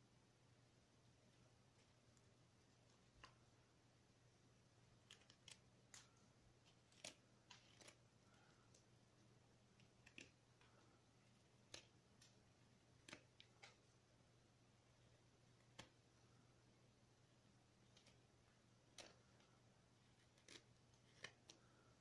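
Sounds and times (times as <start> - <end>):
knife scraping wood: 6.7 - 8.0, 20.2 - 21.6.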